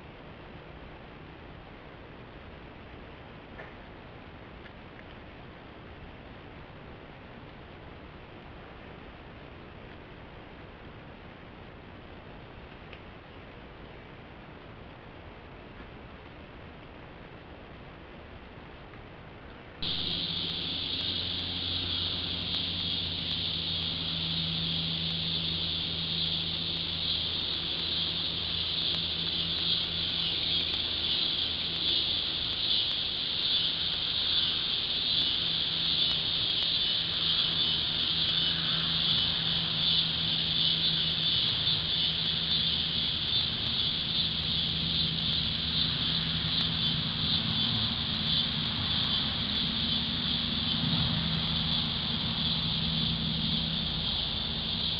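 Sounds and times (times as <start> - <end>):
low steady hum: 0.0 - 54.9
insects chorus: 19.8 - 54.9.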